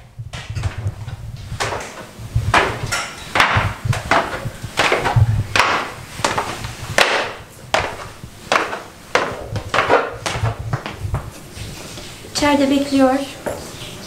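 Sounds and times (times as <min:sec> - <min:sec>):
footsteps on wooden stairs: 0:00.4 - 0:11.5.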